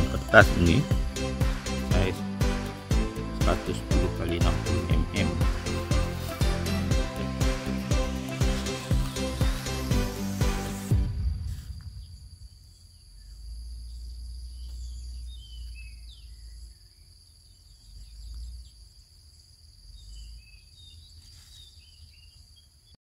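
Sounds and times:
low rumble: 0:08.5 - 0:16.8
insects droning: 0:11.2 - 0:22.9
birds chirping: 0:12.7 - 0:23.0.

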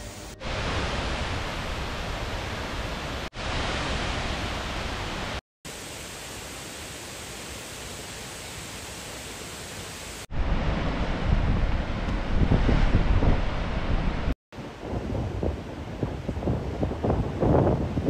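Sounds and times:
waterfall rushing hiss: 0:00.1 - 0:10.3
wind buffeting microphone: 0:10.3 - 0:18.0.

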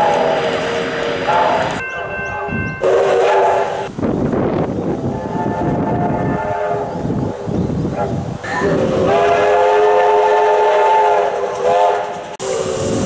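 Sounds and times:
steam locomotive chime whistle: 0:00.0 - 0:03.9, 0:08.5 - 0:13.0
rumble of moving train: 0:00.0 - 0:13.0.

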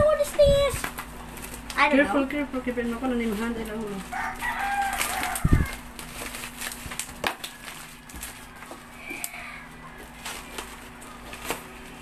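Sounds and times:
plastic wrapping crinkling: 0:00.8 - 0:12.0
scissors cutting plastic: 0:03.5 - 0:09.4.

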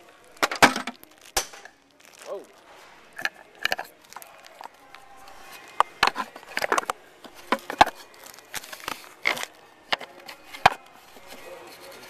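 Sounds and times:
rustling: 0:00.6 - 0:12.0
handling knocks and clicks: 0:05.5 - 0:12.0.

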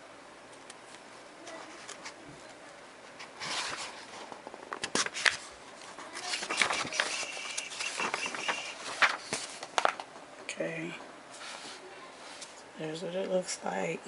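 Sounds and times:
paper pages rustling: 0:03.1 - 0:10.1
pages snapping crisply: 0:04.7 - 0:05.5, 0:06.2 - 0:10.1.

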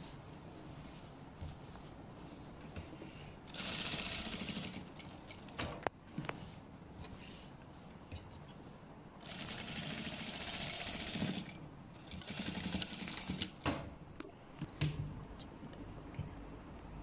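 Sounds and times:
sewing machine stitching: 0:03.5 - 0:05.5, 0:09.2 - 0:13.6.

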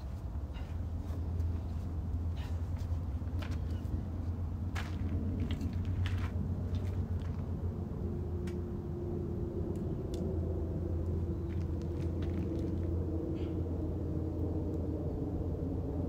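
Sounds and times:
footsteps on gravel: 0:04.7 - 0:07.4, 0:11.5 - 0:12.9.

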